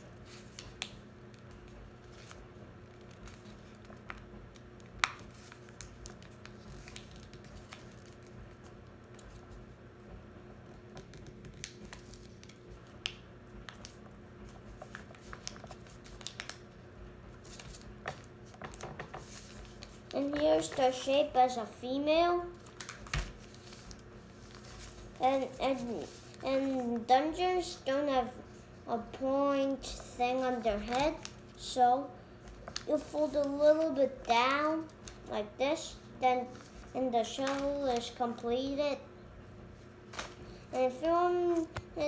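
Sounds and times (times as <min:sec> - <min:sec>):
low room hum: 0:00.0 - 0:42.0
paper crinkling: 0:00.2 - 0:09.6, 0:11.0 - 0:16.8, 0:17.4 - 0:21.1, 0:22.5 - 0:27.1, 0:30.4 - 0:31.6, 0:36.5 - 0:38.2
paper tapping on table: 0:18.0 - 0:19.3.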